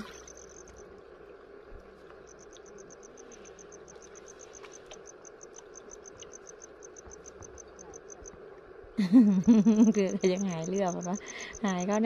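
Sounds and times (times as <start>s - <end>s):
insect chirping: 0.0s - 12.0s.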